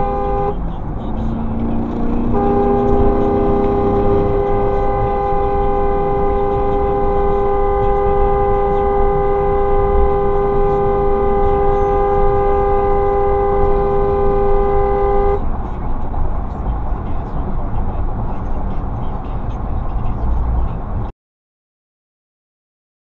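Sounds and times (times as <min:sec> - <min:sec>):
car horn blaring: 0:00.0 - 0:15.6
tyre and road noise: 0:00.0 - 0:21.1.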